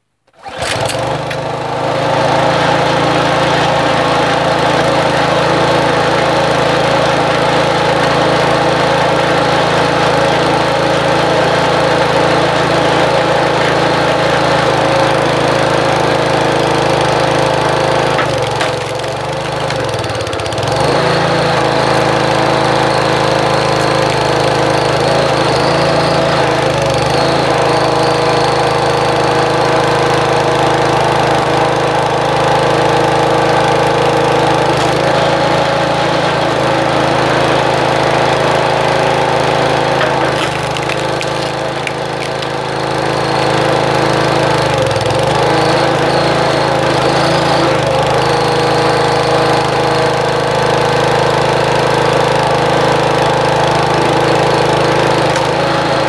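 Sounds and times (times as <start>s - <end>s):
small gas engine running: 0.3s - 56.0s.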